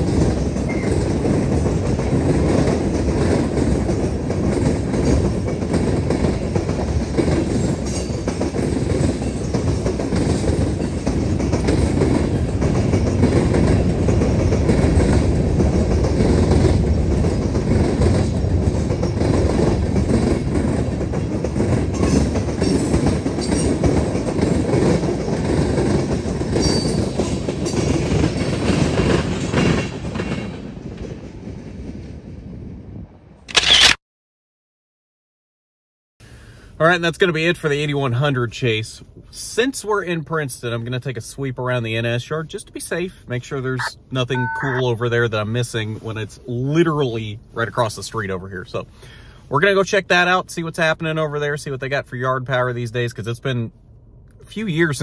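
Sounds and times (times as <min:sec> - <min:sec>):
wheels clicking over rail joints: 0:00.0 - 0:32.0
train wheels rumbling on rails: 0:00.0 - 0:33.4, 0:36.8 - 0:44.2.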